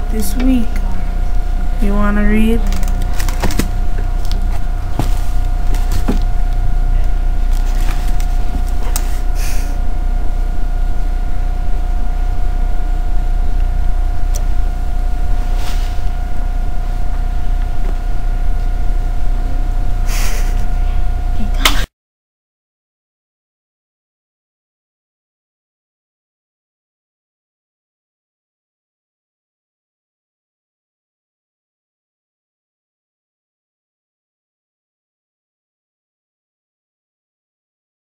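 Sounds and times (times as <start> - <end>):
camcorder hum with high tone: 0.0 - 21.9
boy sniffing: 9.0 - 9.8.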